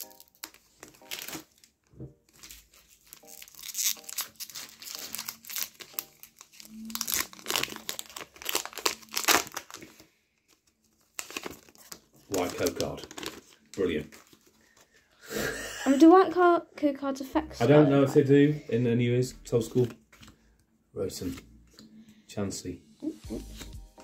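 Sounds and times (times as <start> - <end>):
foil wrapper crinkling and tearing: 0.0 - 14.9.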